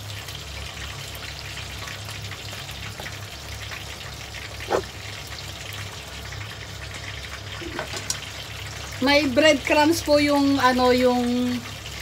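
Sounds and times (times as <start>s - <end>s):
food frying in hot oil: 0.0s - 12.0s.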